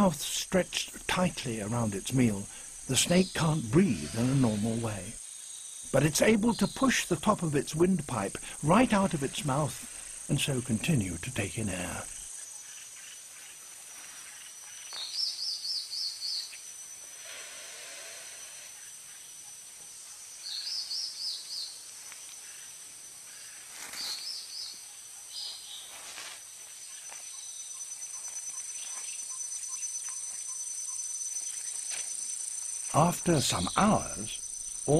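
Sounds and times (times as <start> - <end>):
high insect buzz: 0.0 - 34.9.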